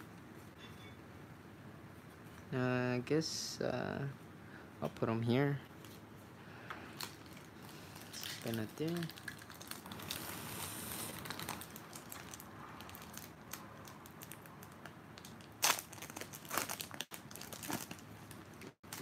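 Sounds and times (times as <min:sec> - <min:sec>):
foil wrapper crinkling: 0:07.0 - 0:19.0.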